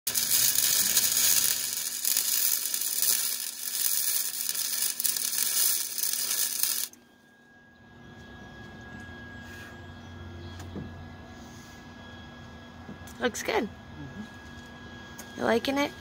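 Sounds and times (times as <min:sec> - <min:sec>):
arc welding sizzling crackle: 0:00.1 - 0:07.0.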